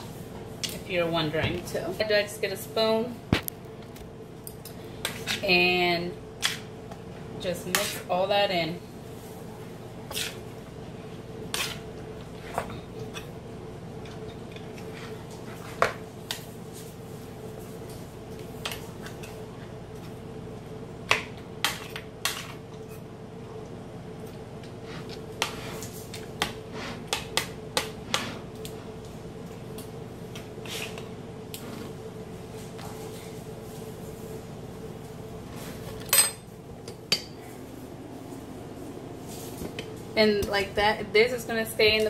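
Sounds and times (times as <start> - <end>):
low hum: 28.4 - 41.2.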